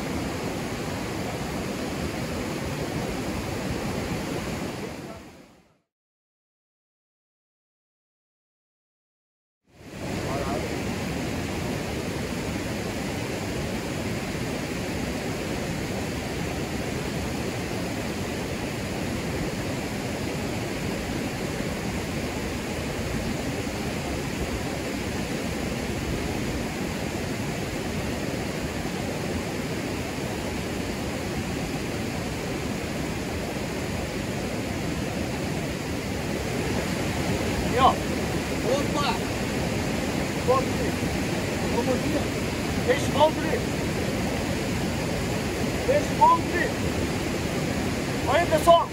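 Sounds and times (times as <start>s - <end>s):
white water rushing over rapids: 0.0s - 5.6s, 9.7s - 48.9s.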